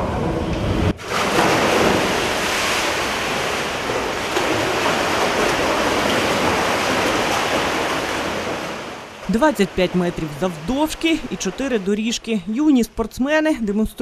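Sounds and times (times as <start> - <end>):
swimmers diving into pool: 0.8 - 11.7
water churning from swim strokes: 1.0 - 11.7.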